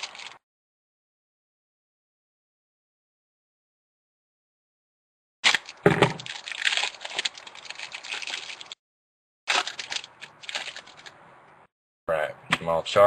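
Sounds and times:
foil wrapper crinkling and tearing: 0.0 - 0.4, 5.4 - 8.8, 9.5 - 11.2.

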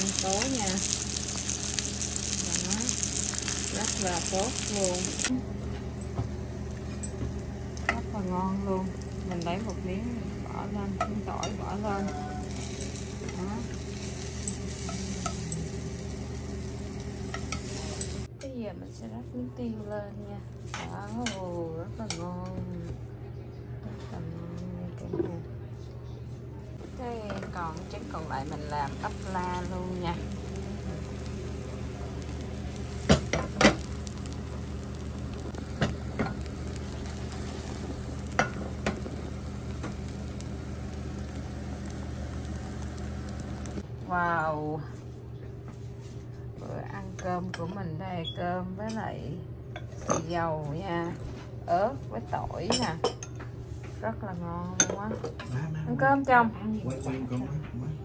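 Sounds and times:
food sizzling in oil: 0.0 - 5.3, 6.5 - 18.3, 26.8 - 43.8
low hum: 0.0 - 18.4, 26.8 - 45.5.

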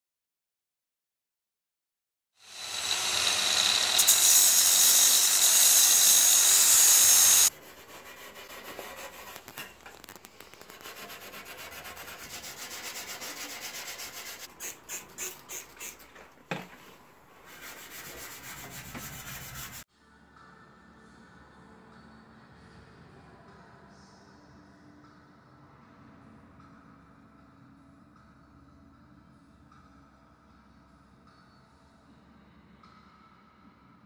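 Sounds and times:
grinding disc on steel: 2.4 - 7.5
wire wool scrubbing steel: 2.5 - 19.8.

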